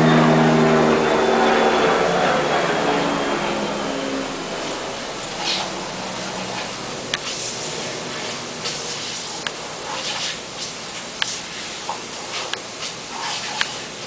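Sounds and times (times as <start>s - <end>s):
lawn sprinkler spray hissing: 5.2s - 14.0s.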